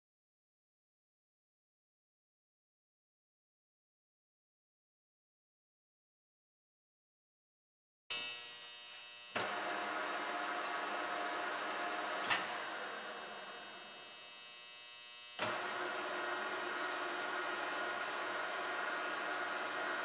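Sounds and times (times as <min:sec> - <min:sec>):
lathe motor hum and whine: 0:08.2 - 0:20.0.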